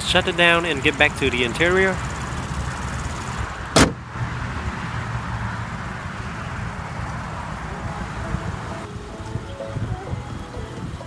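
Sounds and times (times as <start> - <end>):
car hood slamming shut: 3.7 - 4.1.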